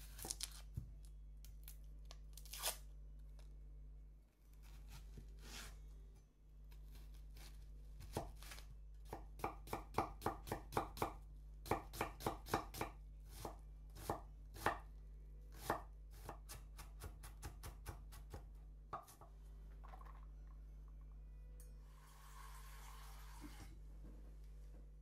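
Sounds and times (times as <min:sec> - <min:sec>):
knife chopping on cutting board: 0:09.1 - 0:14.8.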